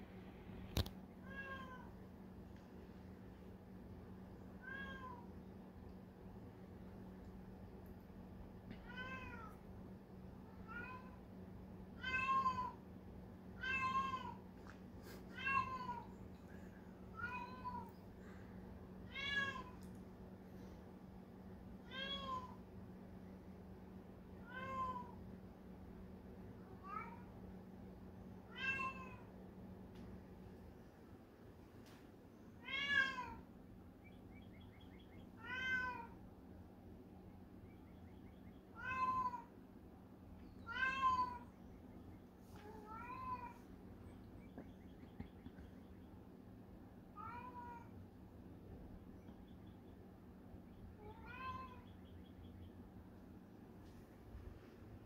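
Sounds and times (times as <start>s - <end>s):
cat meowing: 1.2s - 1.9s, 4.6s - 5.2s, 8.8s - 9.5s, 12.0s - 12.8s, 13.6s - 14.4s, 28.5s - 29.2s, 35.4s - 36.2s, 38.8s - 39.5s, 40.7s - 41.4s, 51.0s - 51.8s.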